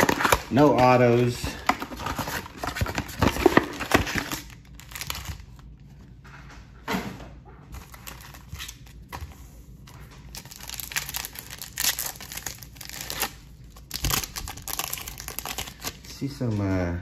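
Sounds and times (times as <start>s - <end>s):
foil wrapper crinkling and tearing: 2.0s - 5.7s, 7.8s - 9.2s, 10.3s - 16.3s.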